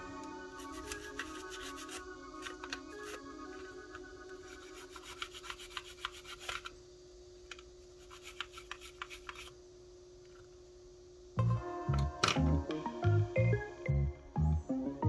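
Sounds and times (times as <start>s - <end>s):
faint steady hum: 0.0s - 15.0s
scraping on small parts: 0.6s - 6.8s, 7.4s - 9.6s.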